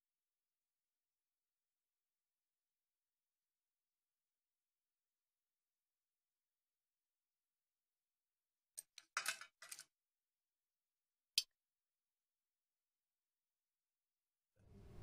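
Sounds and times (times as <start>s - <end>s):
small hard objects clicking: 8.8s - 9.9s.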